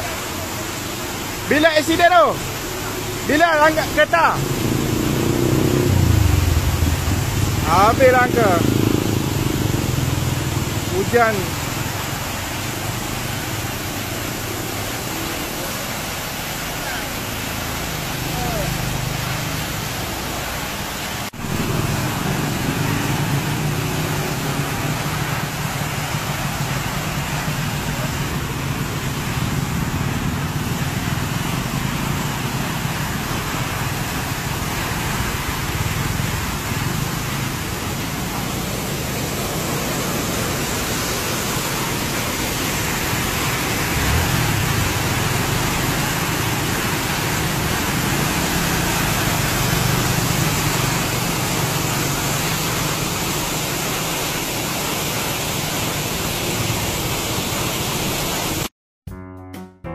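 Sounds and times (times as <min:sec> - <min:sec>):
water jetting and spraying: 0:00.0 - 0:58.7.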